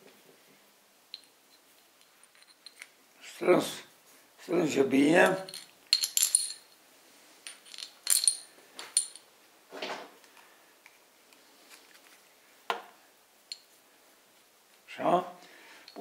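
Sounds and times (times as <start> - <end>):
metal parts clinking: 1.1 - 3.0, 5.2 - 6.8, 7.4 - 9.3.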